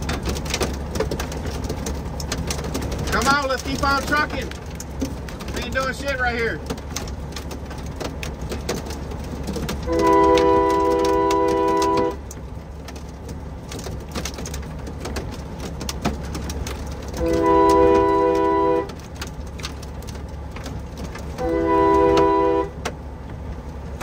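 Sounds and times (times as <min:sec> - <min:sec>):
truck air horn: 0:09.9 - 0:12.2, 0:17.2 - 0:19.0, 0:21.4 - 0:22.8.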